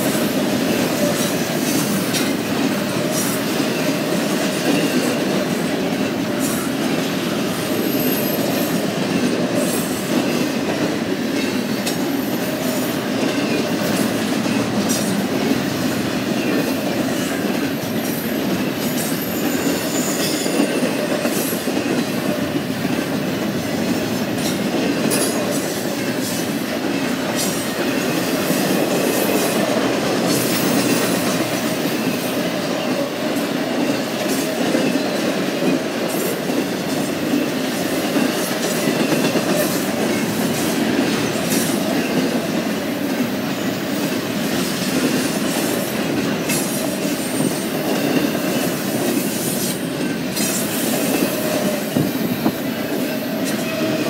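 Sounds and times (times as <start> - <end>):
train wheels rumbling on track: 0.0 - 54.0
high wheel squeal: 18.9 - 20.8.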